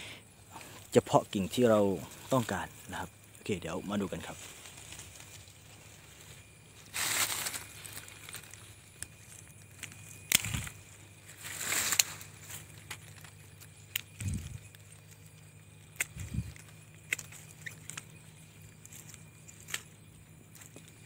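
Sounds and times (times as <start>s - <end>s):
rustle of leaves and twigs: 0.0s - 21.0s
pruning shears snipping: 7.4s - 14.8s, 15.9s - 18.2s.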